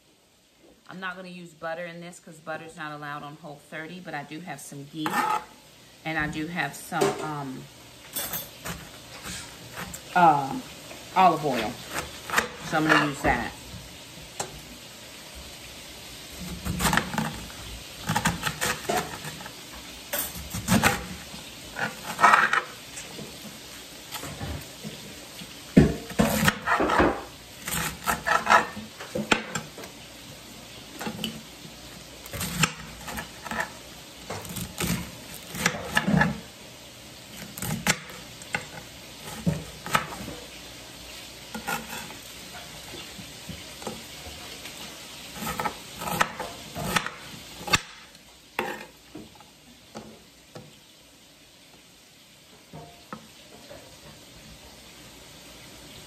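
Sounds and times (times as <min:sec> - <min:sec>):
food sizzling in oil: 0:03.6 - 0:56.0
utensil scraping a pan: 0:05.0 - 0:05.5, 0:08.1 - 0:10.4, 0:16.6 - 0:23.4, 0:25.8 - 0:29.9, 0:32.3 - 0:36.4, 0:41.5 - 0:47.8, 0:48.6 - 0:49.4.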